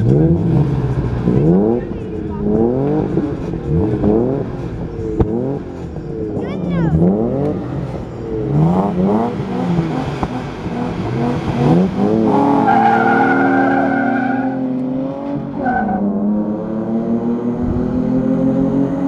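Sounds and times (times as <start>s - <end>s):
truck engines revving: 0.0s - 19.0s
tyre squeal: 12.6s - 14.6s.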